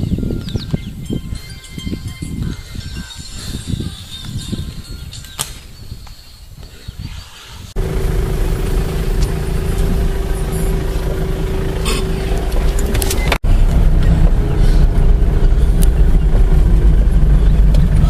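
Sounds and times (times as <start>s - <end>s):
engine running steadily: 7.8s - 18.0s.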